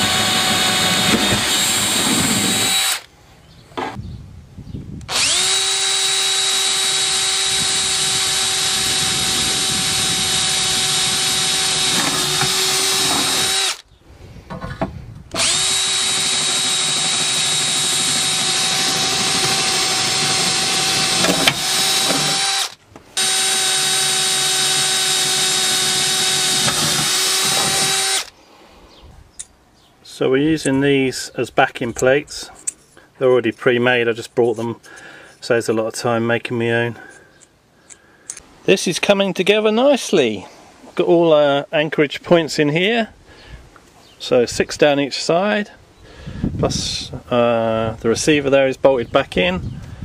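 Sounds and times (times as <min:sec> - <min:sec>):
cordless drill drilling fibreglass: 0:00.0 - 0:03.1, 0:05.1 - 0:13.9, 0:15.3 - 0:28.3.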